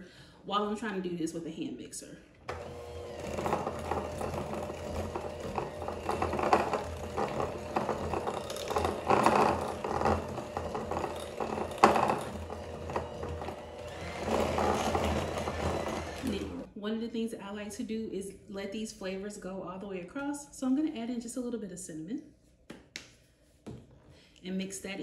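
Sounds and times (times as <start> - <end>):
electric hand mixer running: 2.5 - 16.7
mixer beaters clattering: 2.5 - 16.7.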